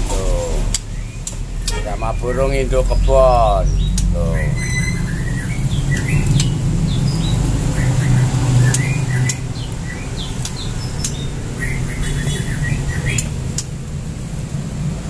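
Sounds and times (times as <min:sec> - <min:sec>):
low background rumble: 0:00.0 - 0:15.0
songbirds chirping: 0:00.0 - 0:15.0
sharp ticks: 0:03.8 - 0:04.3, 0:05.8 - 0:06.6, 0:08.6 - 0:11.4, 0:13.0 - 0:14.0.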